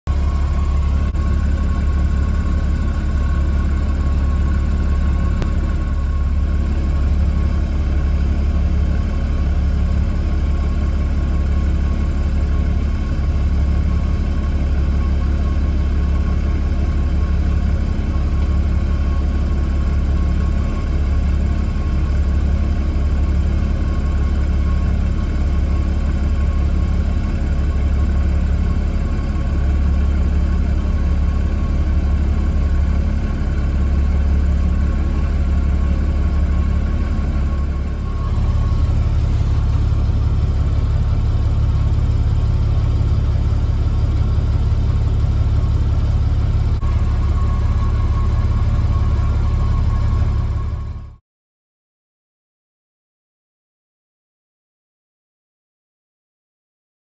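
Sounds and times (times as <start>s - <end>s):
low engine rumble: 0.0s - 51.2s
faint steady whine: 28.8s - 51.2s.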